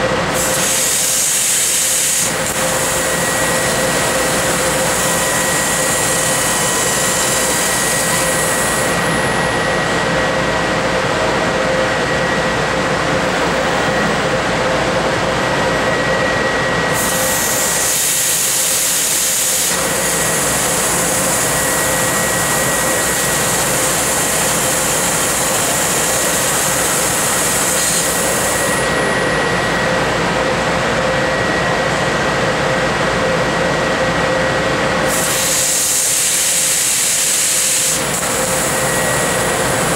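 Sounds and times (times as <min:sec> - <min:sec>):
high gas hiss: 0:00.0 - 0:09.6, 0:16.9 - 0:29.5, 0:35.0 - 0:39.9
laser cutter mechanical noise: 0:00.0 - 0:39.9
steady whining tones: 0:02.3 - 0:35.1, 0:37.9 - 0:39.9.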